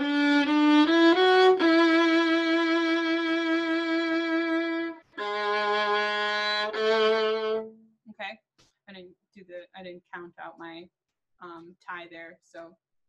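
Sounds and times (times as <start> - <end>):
solo violin played slowly: 0.0 - 7.8.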